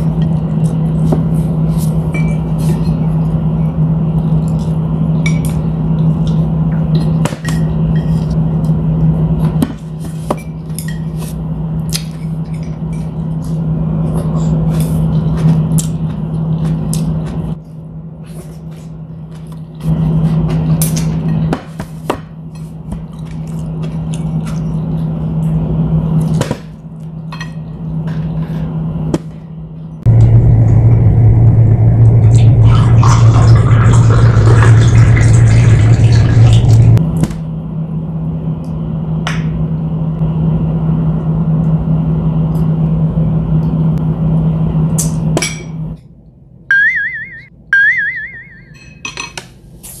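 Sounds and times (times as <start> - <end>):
low mechanical hum: 0.0 - 50.0
water pouring into a glass: 32.6 - 37.0.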